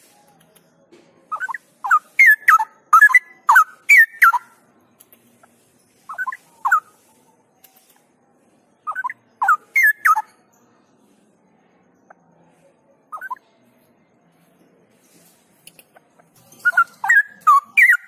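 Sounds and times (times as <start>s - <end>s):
bird singing whistled notes: 1.3s - 4.5s, 6.1s - 6.9s, 8.9s - 10.3s, 13.1s - 13.4s, 16.6s - 18.0s.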